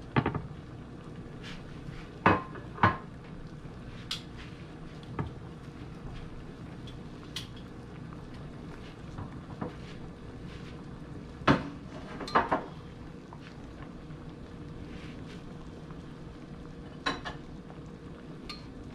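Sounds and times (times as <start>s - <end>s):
pot of water boiling: 0.0s - 18.9s
kitchenware clattering: 11.5s - 12.7s, 17.0s - 17.4s.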